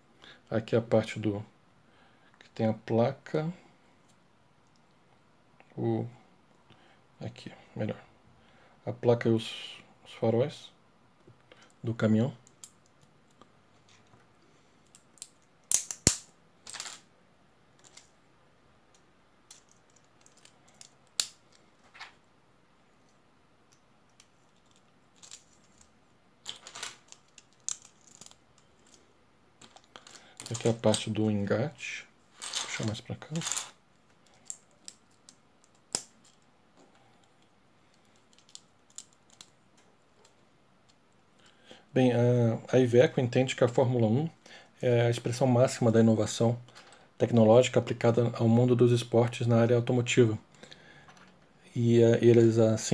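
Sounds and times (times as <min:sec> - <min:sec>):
plastic pieces rattling: 0:19.5 - 0:22.1, 0:24.2 - 0:29.0, 0:29.6 - 0:31.0, 0:32.3 - 0:36.4, 0:37.9 - 0:39.5
plastic bricks clicking together: 0:24.2 - 0:29.0.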